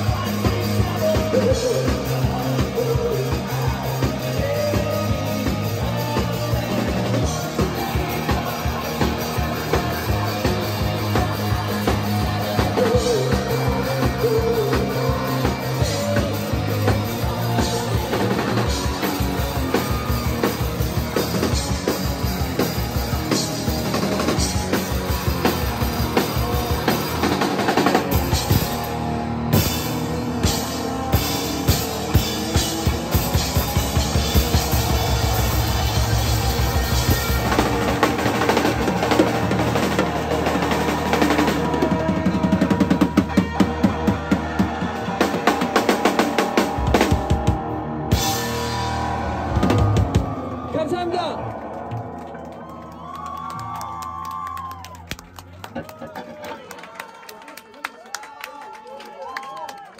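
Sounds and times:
person singing: 0.0 - 21.8
drum-kit beat: 0.0 - 51.3
electric guitar: 0.0 - 56.5.

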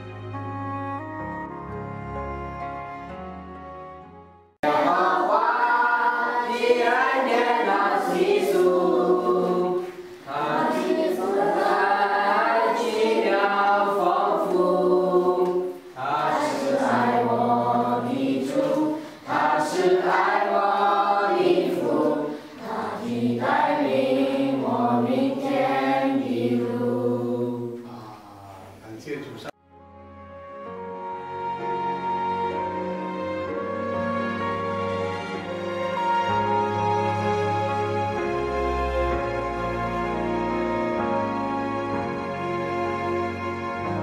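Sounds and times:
children singing together: 4.6 - 28.2.

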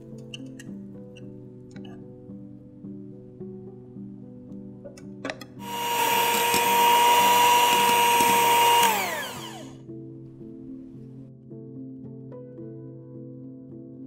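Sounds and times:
mixer switch clicks: 5.3 - 9.7
electric hand mixer whining: 5.6 - 9.8.

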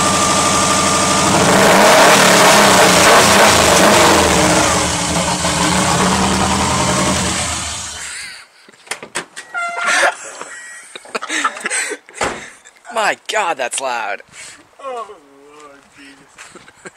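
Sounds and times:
car engine revving: 0.0 - 8.1.

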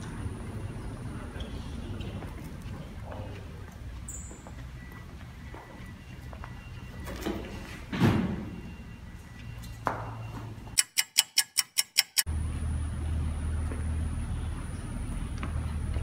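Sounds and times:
fast clock ticking: 10.8 - 12.3.

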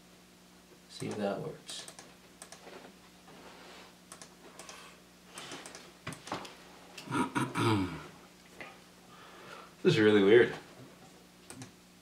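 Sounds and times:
man murmuring: 7.0 - 8.2.

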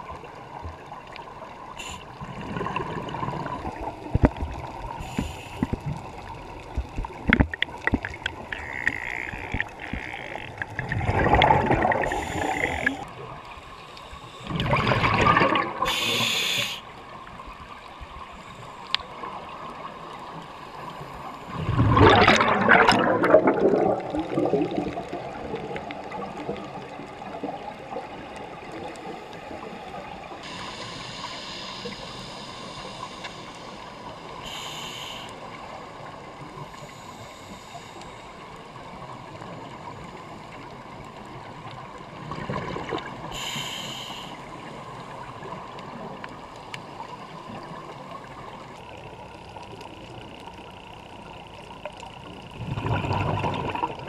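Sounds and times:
regulator bubbles gurgling underwater: 0.0 - 54.0
steady underwater hiss: 0.0 - 54.0.

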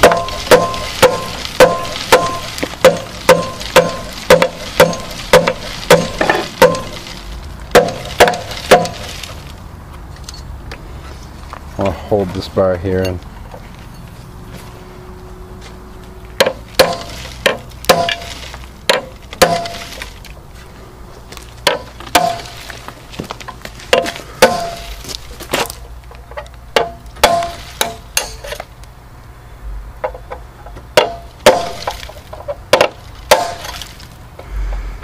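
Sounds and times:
hammer striking steel bar: 0.0 - 7.1, 7.7 - 9.0, 16.4 - 19.8, 21.6 - 22.5, 23.9 - 24.9, 26.8 - 28.4, 31.0 - 32.0, 32.7 - 33.8.

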